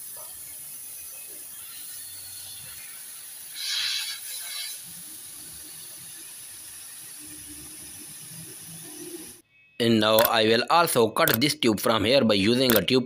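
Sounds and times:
refrigerant gas hissing: 0.0 - 9.4.

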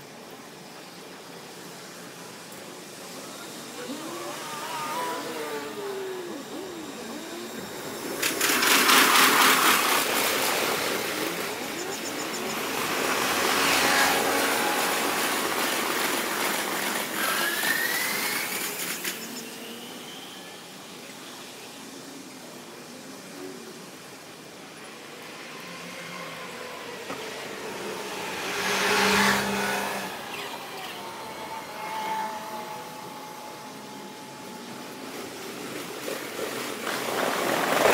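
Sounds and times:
rising train whine: 1.3 - 20.9, 24.5 - 37.9
passing electric train rush: 5.2 - 19.2.

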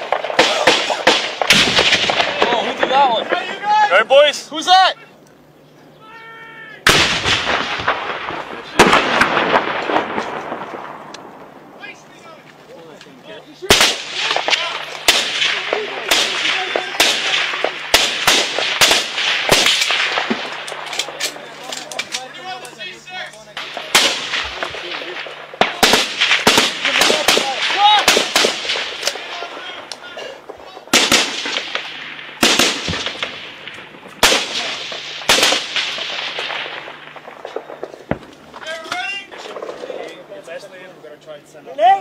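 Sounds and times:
faint distant gunfire cracks: 0.0 - 3.5, 6.9 - 11.5, 13.7 - 22.2, 23.6 - 40.2
rifle shots: 0.0 - 3.6, 6.8 - 11.5, 13.6 - 22.2, 23.5 - 29.9, 30.5 - 38.6.

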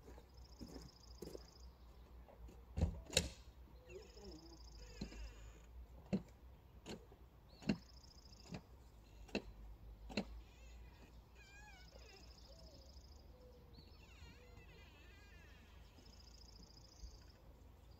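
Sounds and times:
high bird trills: 10.5 - 17.4.

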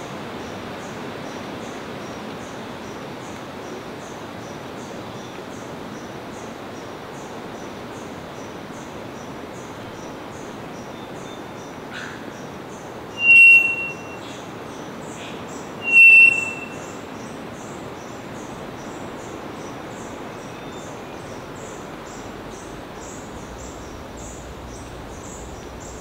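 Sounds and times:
high insect chorus: 0.0 - 26.0
bird calling with click and whistle: 13.1 - 17.7.

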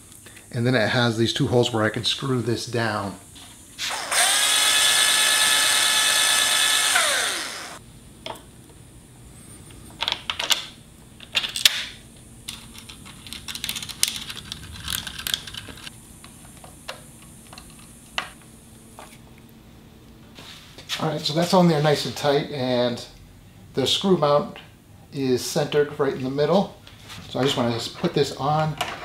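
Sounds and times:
cordless drill whining: 3.8 - 7.8
screws and metal mount clicking: 12.5 - 15.9.

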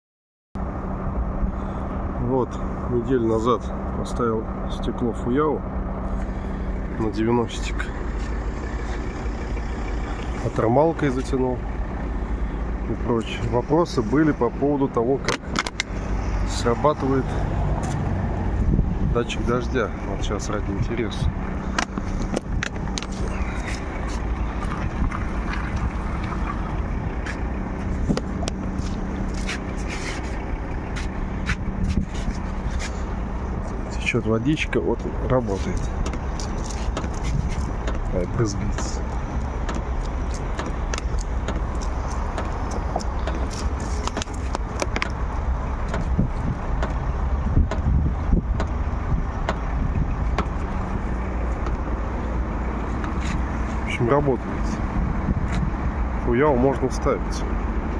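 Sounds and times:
wind rumble on microphone: 15.4 - 34.1, 35.0 - 56.4.

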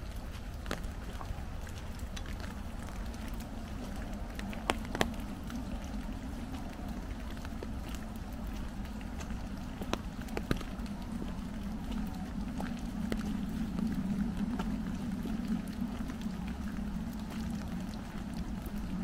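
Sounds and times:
footsteps on wet gravel: 0.0 - 14.8
low wind rumble: 0.0 - 19.0
rain tapping on umbrella: 0.0 - 19.0.

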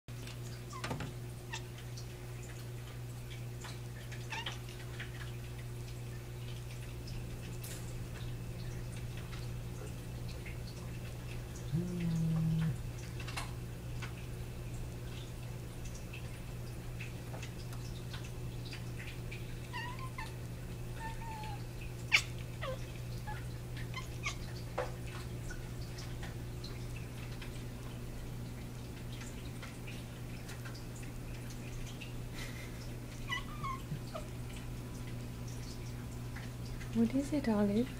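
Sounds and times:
steady low hum: 0.4 - 37.9
cat chirp: 11.7 - 12.8, 21.0 - 23.4.

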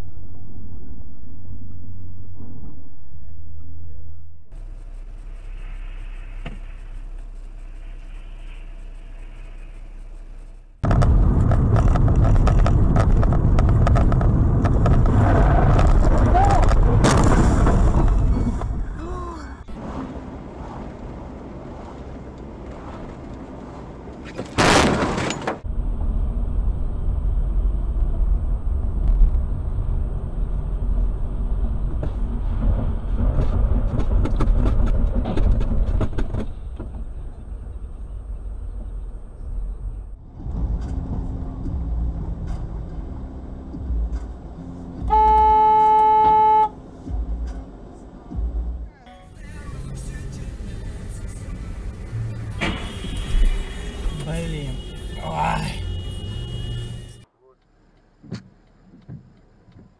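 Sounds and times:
car road and engine rumble: 0.0 - 59.9
car horn blast: 45.0 - 46.8, 52.5 - 57.3.

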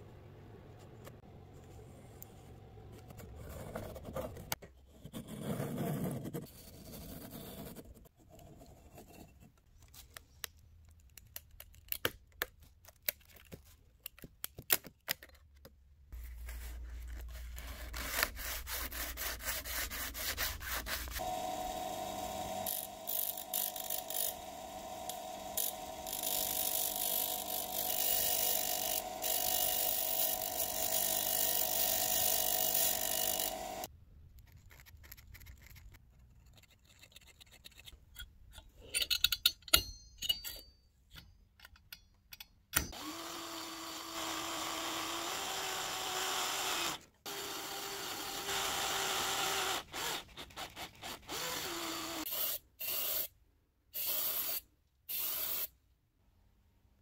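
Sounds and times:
bench grinder grinding steel: 21.0 - 33.9.

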